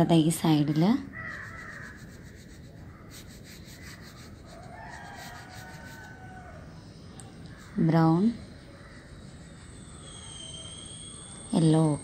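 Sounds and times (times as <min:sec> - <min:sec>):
crayon rubbing on paper: 0:01.1 - 0:06.2.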